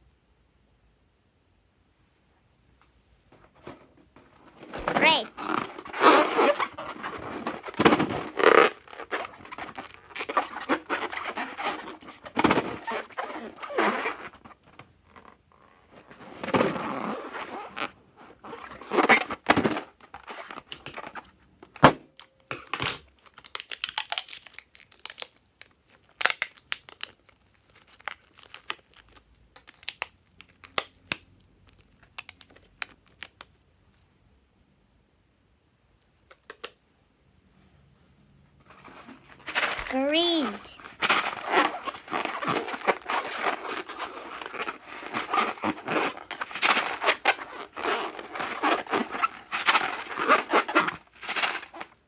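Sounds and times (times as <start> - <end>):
rubber balloon tearing: 4.4 - 21.2, 38.8 - 52.0.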